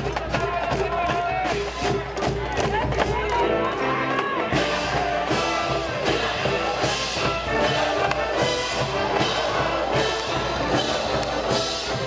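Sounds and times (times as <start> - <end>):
drum beats: 0.0 - 12.0
brass band playing: 3.2 - 12.0
trumpets: 3.4 - 12.0.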